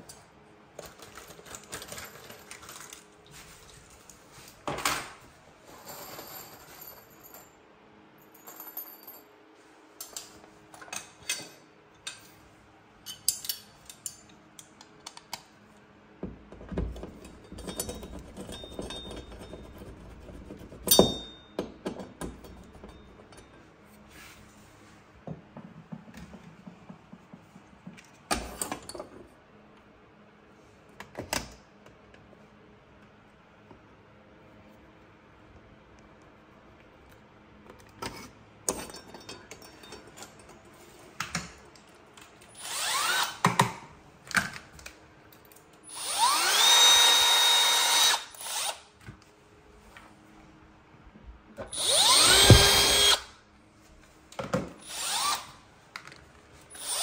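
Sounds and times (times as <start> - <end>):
metal parts and tools clinking: 0.8 - 3.0, 8.2 - 9.3, 10.0 - 12.3, 13.0 - 14.8, 17.1 - 19.9, 38.7 - 40.7.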